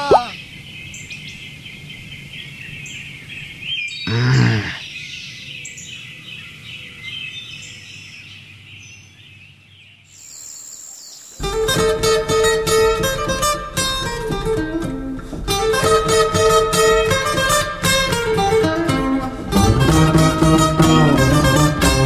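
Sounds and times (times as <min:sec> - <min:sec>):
birds chirping: 0:00.0 - 0:11.9, 0:15.4 - 0:22.0.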